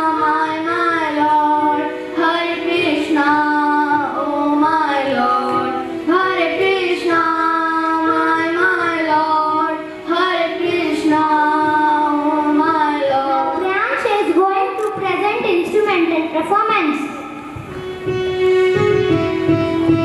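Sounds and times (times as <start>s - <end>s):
girls singing into microphones: 0.0s - 15.4s.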